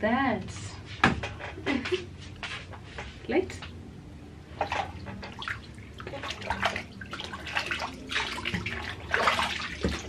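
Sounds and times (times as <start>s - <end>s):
water splashing and dripping: 4.6s - 10.0s.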